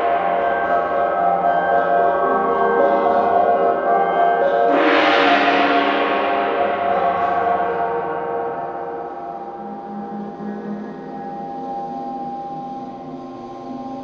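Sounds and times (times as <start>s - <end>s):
ringing drone tones: 0.0s - 14.0s
large gong struck: 4.7s - 9.8s.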